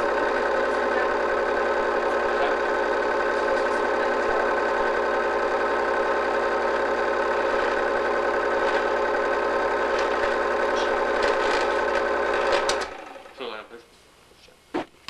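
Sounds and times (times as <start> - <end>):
film projector whirring: 0.0 - 13.8.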